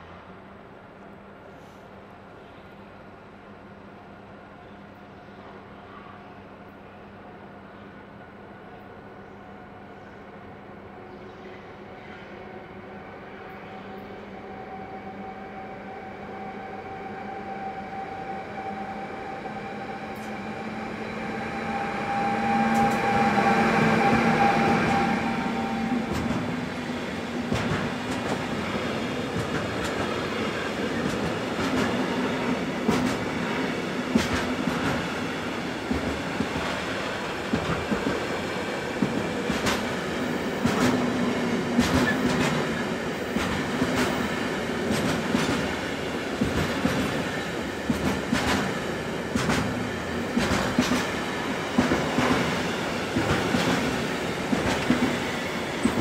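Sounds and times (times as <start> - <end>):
train cars clicking over rails: 27.3 - 28.6, 29.2 - 32.2, 32.8 - 33.3, 34.1 - 35.1, 39.0 - 40.0, 40.6 - 41.1, 41.7 - 45.8, 46.4 - 56.0.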